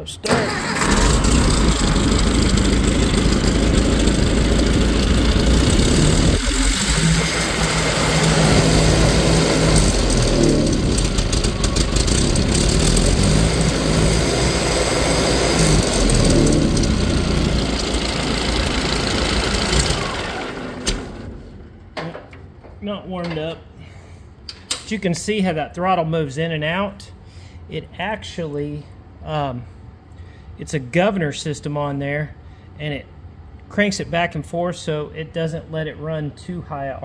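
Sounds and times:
tractor engine running: 0.2s - 22.2s.

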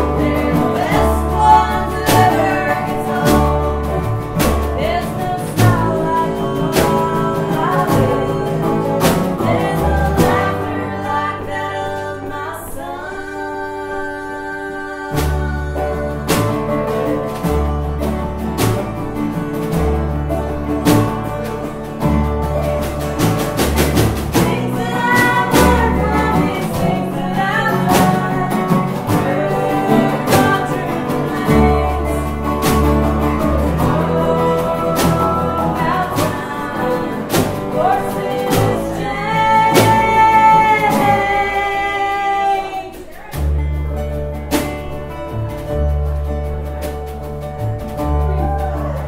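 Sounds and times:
person singing: 0.0s - 18.2s, 24.3s - 44.6s
banjo: 0.0s - 49.0s
upright double bass: 0.0s - 49.0s.

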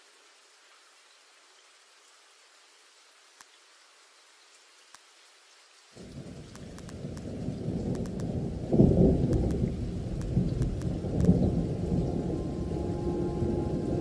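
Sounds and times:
rain: 0.0s - 14.0s
low rolling thunder: 6.0s - 14.0s
sustained music notes: 11.2s - 14.0s.

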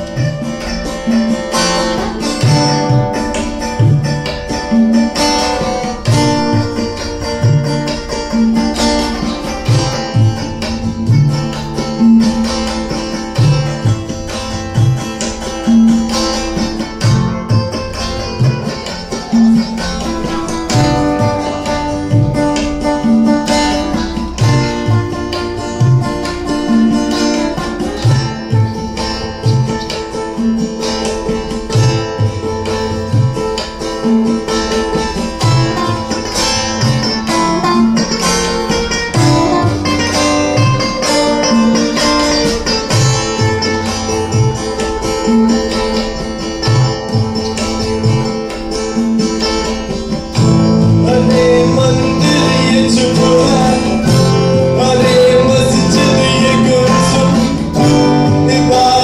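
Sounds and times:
acoustic guitars playing: 0.0s - 59.0s
tabla strokes: 0.0s - 59.0s
person singing: 50.8s - 59.0s.

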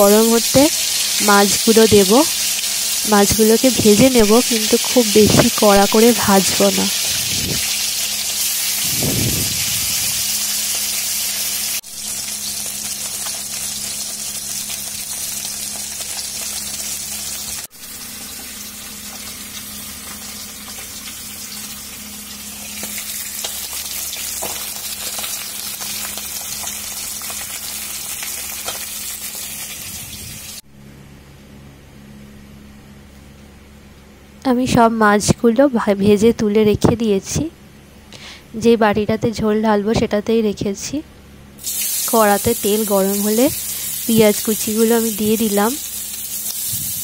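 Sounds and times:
fish sizzling in hot oil: 0.0s - 30.6s, 41.6s - 47.0s
low steady hum: 0.0s - 47.0s.

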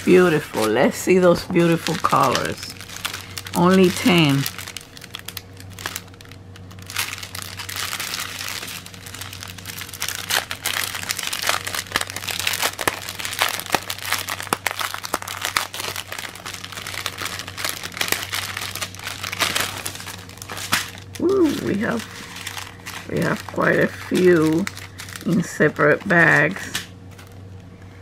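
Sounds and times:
plastic bag crinkling: 0.0s - 27.5s
steady low hum: 0.0s - 28.0s
small packets rustling and clicking: 0.1s - 27.7s.

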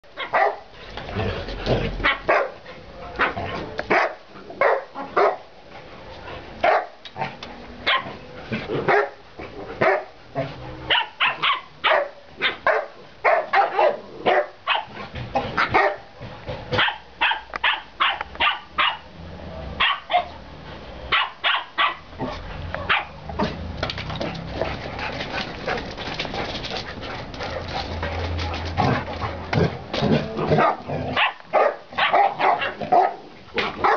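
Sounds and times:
dogs barking: 0.2s - 0.7s, 2.0s - 2.6s, 3.9s - 5.5s, 6.6s - 7.0s, 7.8s - 8.2s, 8.8s - 9.2s, 9.8s - 16.1s, 16.7s - 19.1s, 19.8s - 20.4s, 21.1s - 23.4s, 30.4s - 33.9s.

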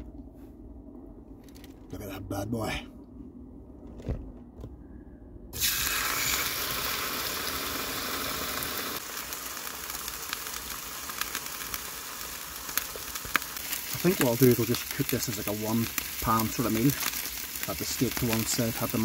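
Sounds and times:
steak sizzling in a frying pan: 5.6s - 19.0s.

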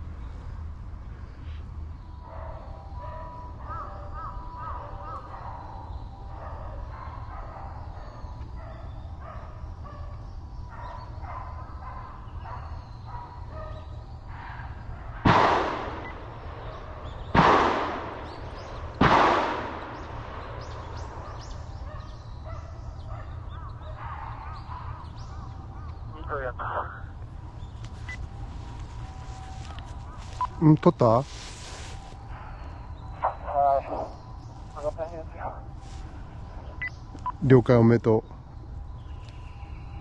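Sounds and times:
gunshots: 15.2s - 21.6s.

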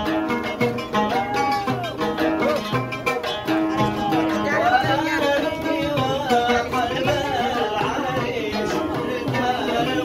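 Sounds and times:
hand drums beating: 0.0s - 10.0s
people singing: 3.6s - 10.0s.

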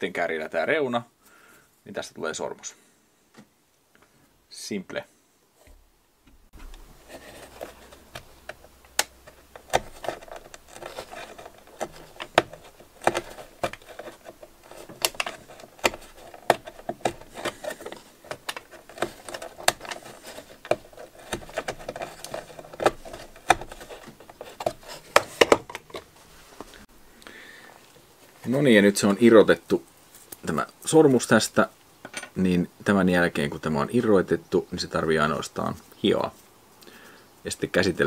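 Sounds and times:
knife scraping wood: 6.6s - 26.7s.

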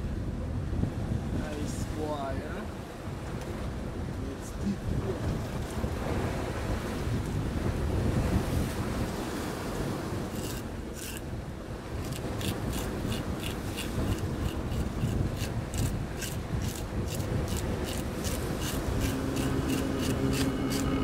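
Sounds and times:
surf rumbling: 0.0s - 21.0s
wind: 0.0s - 21.0s
knife scraping fish scales: 10.3s - 11.3s, 12.0s - 21.0s.

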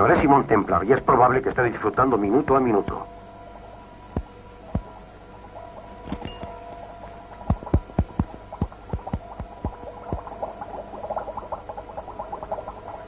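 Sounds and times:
steady held tone: 1.9s - 11.5s
light rapid ticks: 7.4s - 10.3s.

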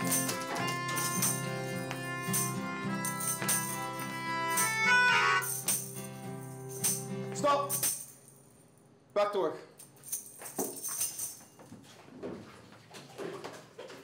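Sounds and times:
melodica melody: 0.0s - 7.0s
acoustic guitar: 0.0s - 8.0s
tambourine struck in rhythm: 0.0s - 8.3s.

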